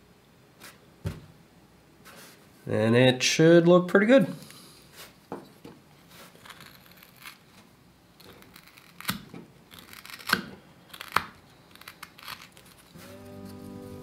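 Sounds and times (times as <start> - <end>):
knife shaving wood: 6.1 - 7.6, 8.2 - 14.0.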